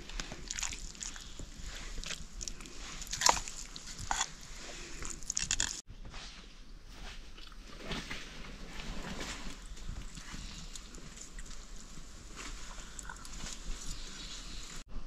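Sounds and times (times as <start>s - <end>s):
wooden spoon scraping steel pot: 2.6s - 5.8s.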